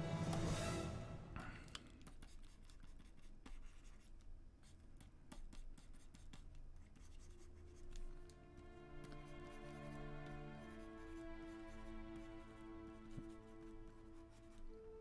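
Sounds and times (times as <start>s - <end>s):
stylus scratching and tapping: 1.8s - 8.4s.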